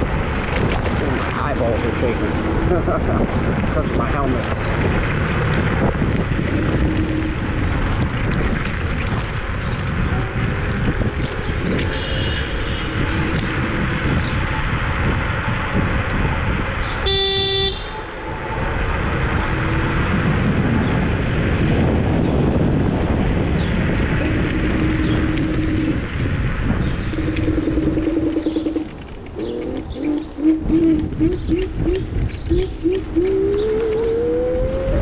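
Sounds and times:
road rumble: 0:00.0 - 0:35.0
wind buffeting microphone: 0:00.0 - 0:35.0
short horn toot: 0:17.0 - 0:17.9.

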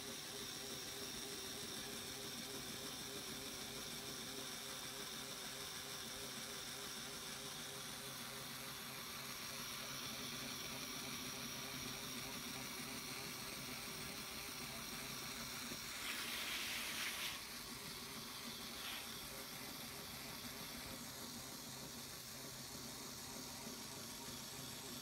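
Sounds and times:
faint hiss: 0:08.5 - 0:25.0
rush of hiss: 0:15.8 - 0:17.7, 0:18.4 - 0:19.5.

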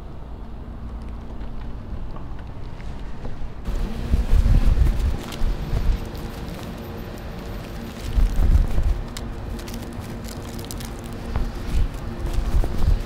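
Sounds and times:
wind rumbling on microphone: 0:00.1 - 0:13.0
plastic bags crinkling: 0:04.7 - 0:13.0.

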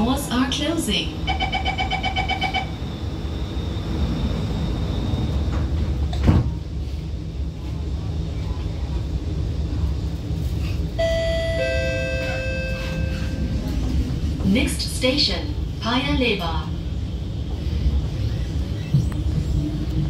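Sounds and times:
train low rumble: 0:00.0 - 0:20.0
train doors shutting: 0:01.2 - 0:07.1, 0:10.4 - 0:16.7.

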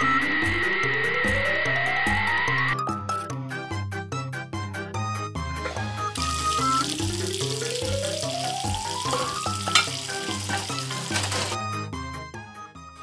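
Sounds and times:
water running from a tap: 0:05.7 - 0:11.6.

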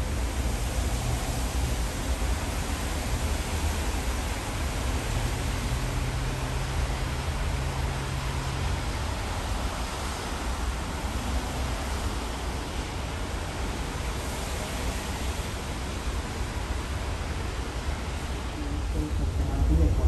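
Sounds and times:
steady rushing noise: 0:00.0 - 0:20.0
deep rumble: 0:18.6 - 0:20.0.

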